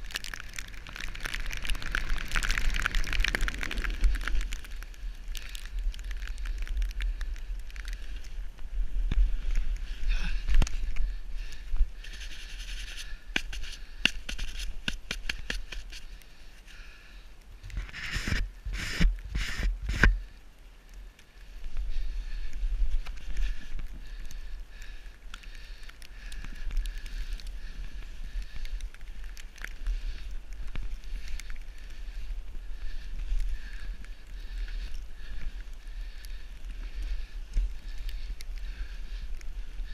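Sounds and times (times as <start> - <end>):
wind rumble on microphone: 0.0 - 16.0
snowboard carving over snow: 17.7 - 20.2.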